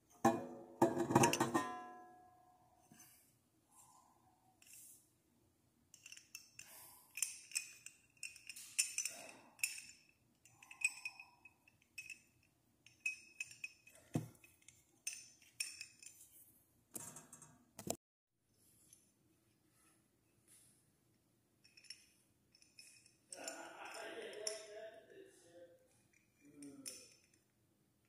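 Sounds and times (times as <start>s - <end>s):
metal pin clinking on metal: 5.9s - 16.4s, 21.6s - 24.8s, 25.9s - 27.5s.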